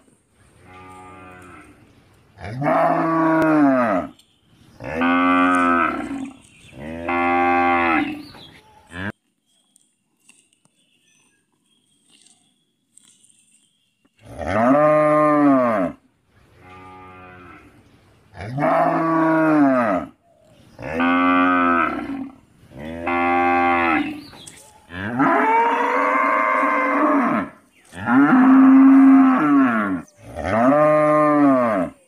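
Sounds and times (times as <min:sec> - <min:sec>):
cow mooing: 0:24.9 - 0:32.0.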